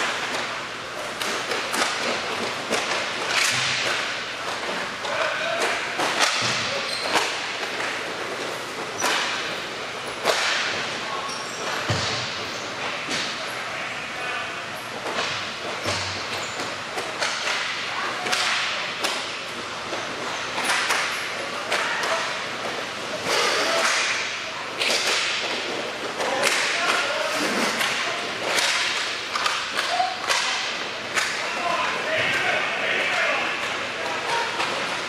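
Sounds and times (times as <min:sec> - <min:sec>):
skates scraping: 0:00.0 - 0:13.3, 0:14.9 - 0:35.0
hockey sticks clacking: 0:00.0 - 0:13.4, 0:14.9 - 0:35.0
players shouting: 0:31.2 - 0:34.7.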